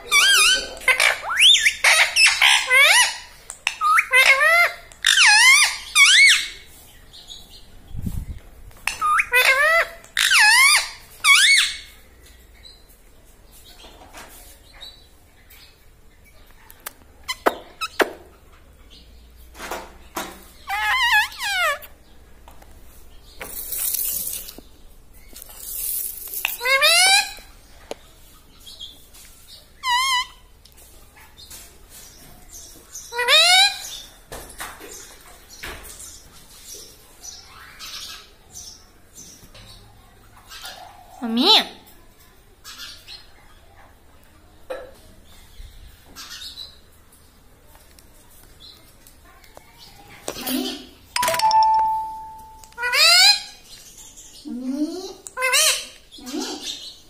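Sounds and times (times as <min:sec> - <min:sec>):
parakeet shrill calls: 0:00.1 - 0:06.6, 0:08.8 - 0:11.8, 0:20.7 - 0:21.8, 0:51.2 - 0:53.6.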